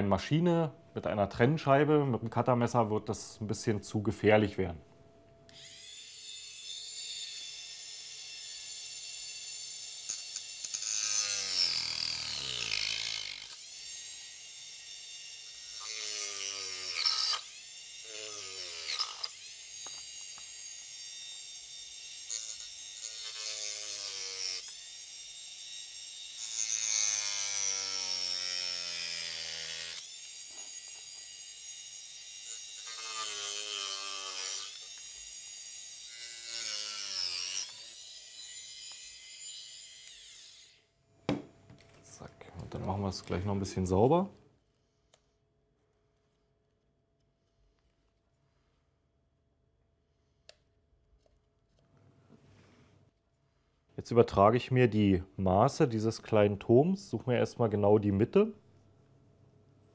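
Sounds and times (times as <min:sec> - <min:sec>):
rotary tool cutting plastic: 0:05.5 - 0:40.9.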